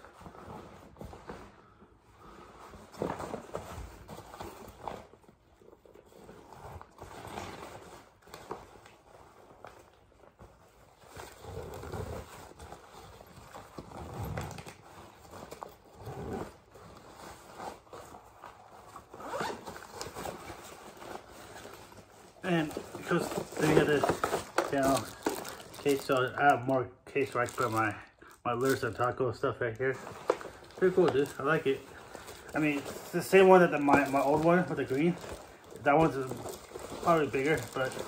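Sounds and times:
backpack rustling: 11.2 - 26.0, 29.9 - 38.0.

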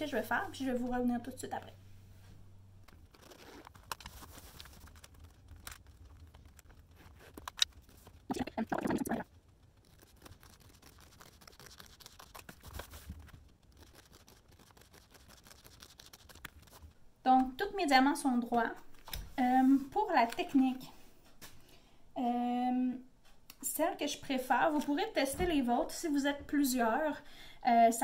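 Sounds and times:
canvas rustling and scraping: 3.0 - 5.4.

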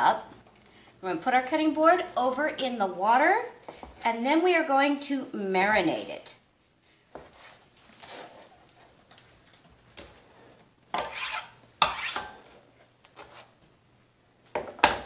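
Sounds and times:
knife scraping cutting board: 10.9 - 12.5, 13.1 - 13.6.

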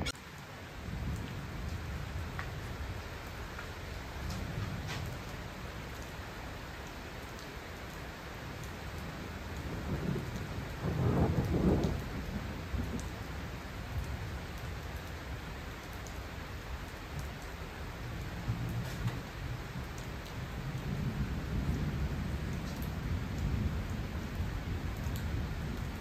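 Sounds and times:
steady rain: 0.0 - 26.0
thunder rolling: 9.7 - 13.0.

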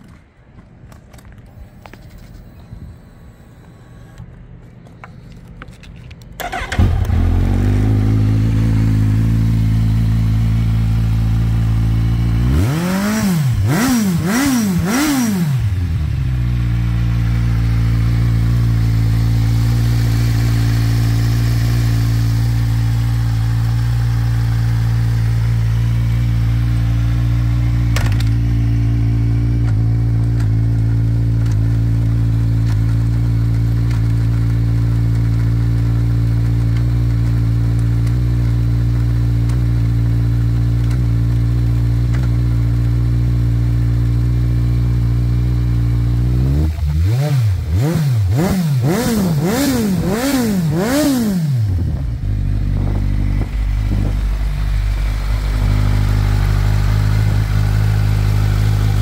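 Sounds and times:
motorcycle engine starter cranking: 6.4 - 7.9
motorcycle engine idling: 6.4 - 12.5, 15.6 - 47.0, 49.4 - 59.0
motorcycle engine revving: 6.4 - 59.0
gear selection clunk: 27.8 - 28.6.

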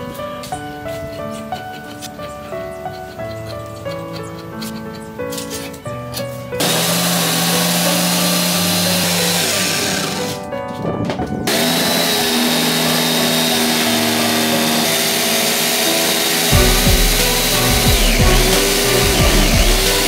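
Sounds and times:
background music: 0.0 - 20.0
jigsaw cutting wood: 6.6 - 10.4, 11.5 - 20.0.

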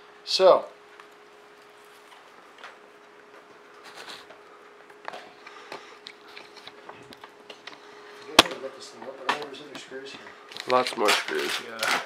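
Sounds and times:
faint steady hum: 0.0 - 11.3.

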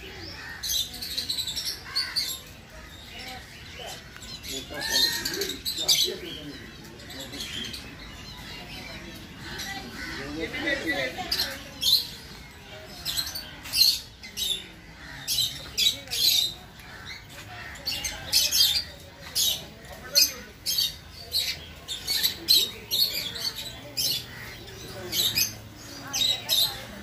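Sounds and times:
parrots squawking: 0.2 - 6.1, 19.4 - 26.8.

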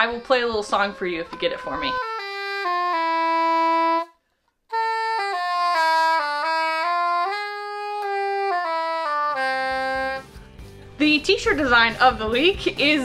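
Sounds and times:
toy saxophone playing a tune: 0.0 - 10.3.

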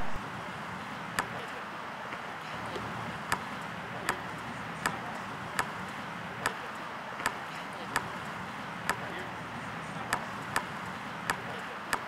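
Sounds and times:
basketball bouncing on asphalt: 2.7 - 9.2, 10.0 - 12.0.

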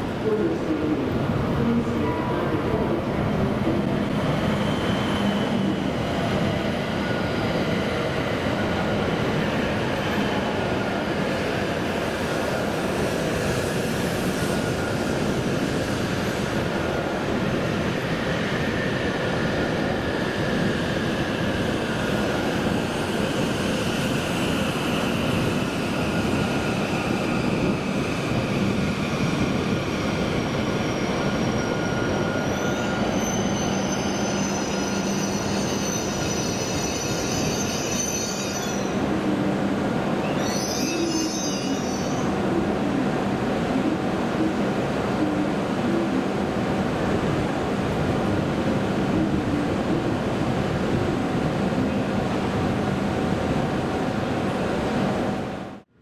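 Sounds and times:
high-pitched brake squeal: 30.8 - 39.0, 40.3 - 42.3.

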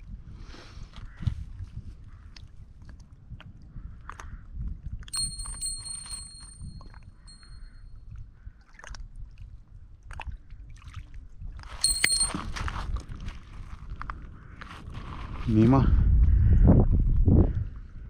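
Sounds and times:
bite-alarm bell jingling: 5.2 - 7.6, 11.8 - 12.6.

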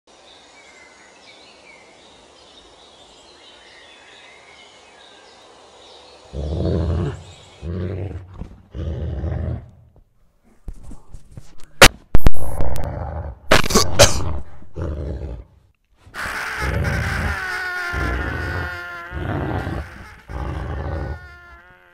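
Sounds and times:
outdoor night hiss: 0.1 - 7.9
deep animal growls: 6.3 - 9.9, 12.6 - 15.6.

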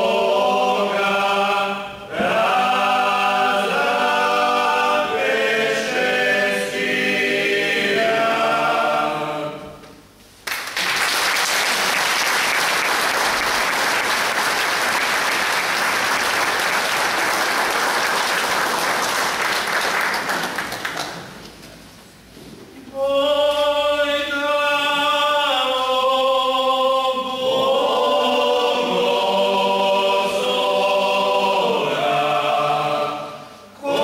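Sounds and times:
vocal ensemble singing a cappella: 0.0 - 10.1, 22.8 - 34.0
audience applause: 10.4 - 21.4.

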